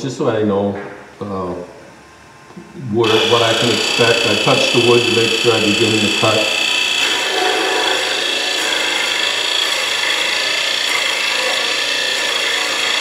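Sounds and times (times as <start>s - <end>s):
drill bit cutting wood: 3.0s - 13.0s
lathe whining: 3.0s - 13.0s.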